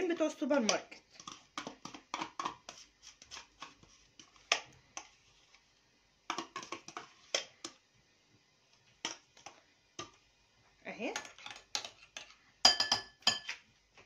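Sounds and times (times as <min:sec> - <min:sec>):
metal spoon scraping a plastic tub: 0:00.7 - 0:05.6, 0:06.3 - 0:07.5
spoon tapping a bowl: 0:06.3 - 0:07.0, 0:12.6 - 0:13.6.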